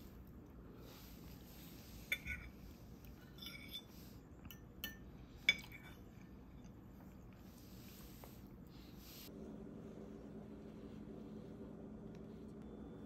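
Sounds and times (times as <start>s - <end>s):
fork scraping ceramic plate: 1.9s - 6.2s.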